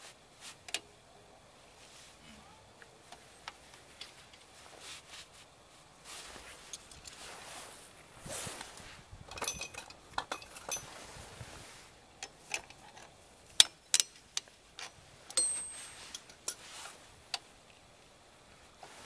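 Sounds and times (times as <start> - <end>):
metallic clinks of hand tools: 15.3 - 16.6
high metallic ringing: 15.4 - 16.1.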